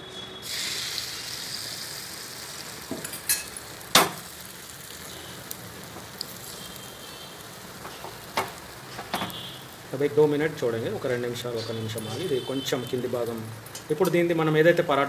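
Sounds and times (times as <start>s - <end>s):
egg sizzling in a pan: 0.4s - 14.9s.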